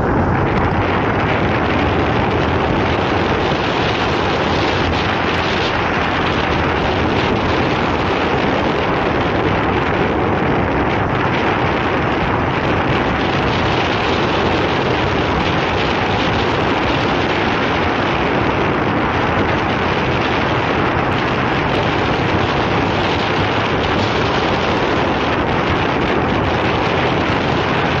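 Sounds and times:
motorcycle engine: 0.0 - 28.0
wind rushing on microphone: 0.0 - 28.0.

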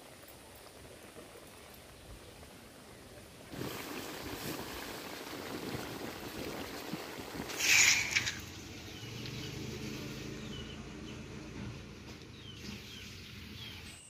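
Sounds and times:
burst of hissing noise: 7.5 - 8.6
bird chirps: 12.3 - 14.0.

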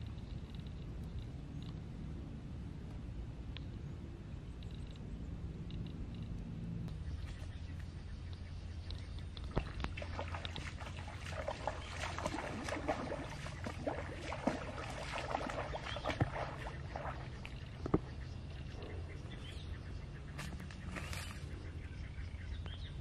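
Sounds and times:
steady low rumble: 0.0 - 23.0
grass and brush rustling: 5.8 - 18.3, 19.3 - 21.8.

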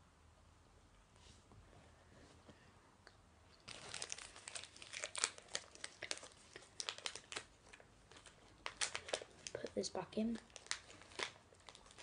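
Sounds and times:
plastic wrapper crinkling: 3.6 - 12.0.

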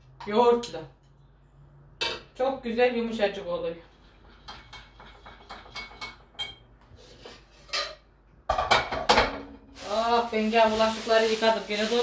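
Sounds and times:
dishes clattering: 4.1 - 6.7, 7.6 - 9.7.

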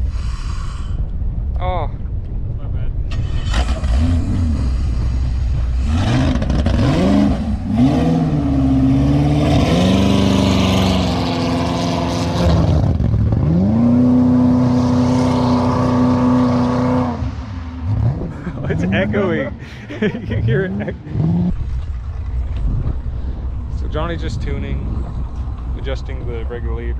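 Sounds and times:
boat engine revving: 3.1 - 22.5.

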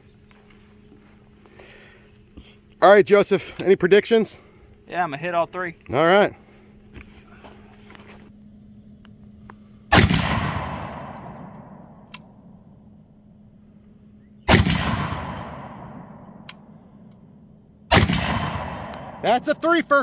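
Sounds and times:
rifle shots with echo: 9.9 - 12.4, 14.5 - 16.6, 17.9 - 19.9.

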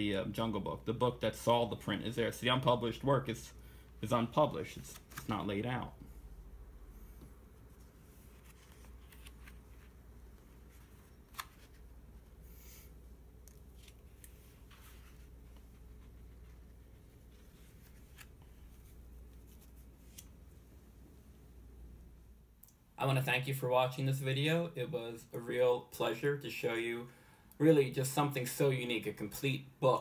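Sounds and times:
paper rustling and crackling: 4.7 - 5.5, 7.7 - 12.0.

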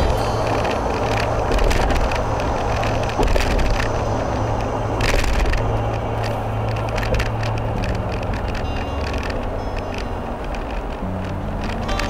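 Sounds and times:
engine and tyre drone: 0.0 - 12.0
irregular crackling: 0.0 - 12.0.

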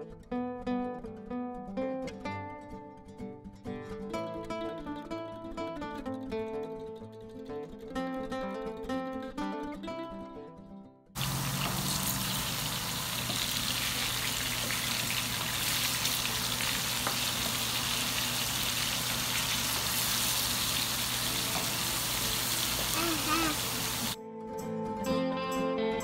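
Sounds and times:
guitar music: 0.0 - 26.0
meat sizzling in frying pan: 11.2 - 24.2.

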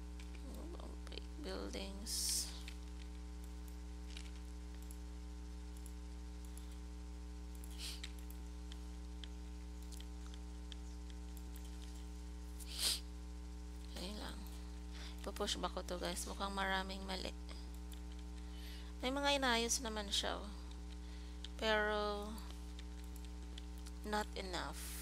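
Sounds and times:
electrical hum: 0.0 - 25.0
short soft hiss: 12.6 - 13.1.

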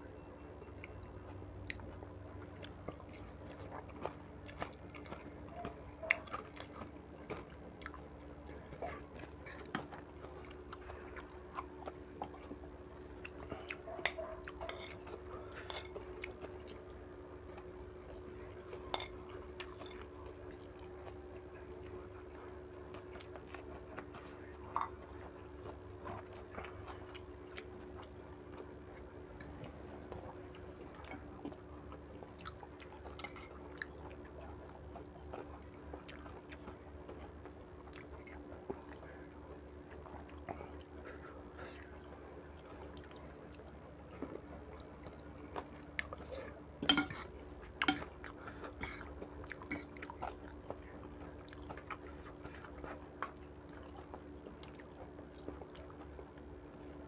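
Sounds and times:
steady low hum: 0.0 - 57.0
chewing and slurping: 0.2 - 56.4
cutlery clinking on ceramic bowl: 46.8 - 48.1.

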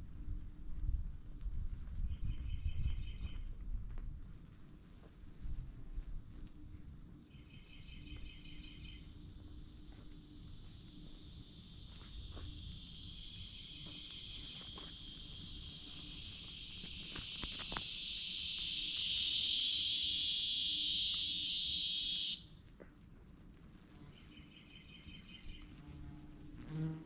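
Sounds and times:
pulsing insect call: 7.3 - 22.5
insect buzzing song: 9.9 - 22.5, 24.1 - 27.0.

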